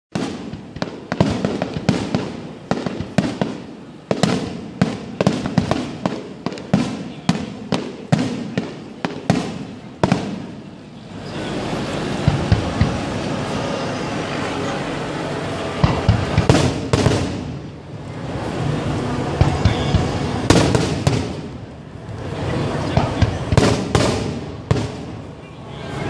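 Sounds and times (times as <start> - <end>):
steady wash of noise: 0.2 - 26.0
firework shells bursting: 15.8 - 17.7, 19.2 - 25.3.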